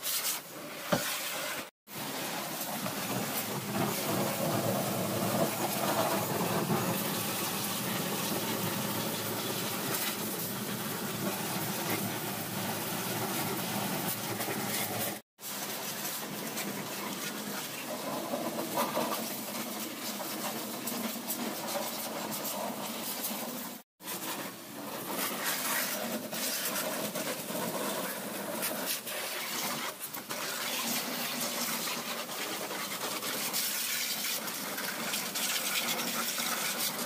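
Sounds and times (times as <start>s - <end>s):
pressure washer spraying water: 0.0s - 37.0s.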